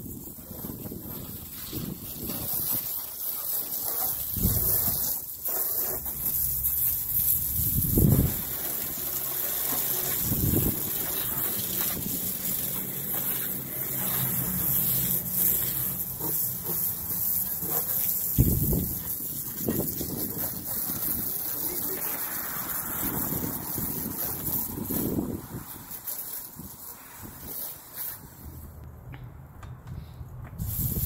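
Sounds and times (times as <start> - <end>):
wind rumble on microphone: 0.0 - 3.0, 4.2 - 5.0, 7.0 - 8.6, 10.1 - 13.4, 18.2 - 31.0
hose water spraying on car: 0.0 - 28.8, 30.6 - 31.0.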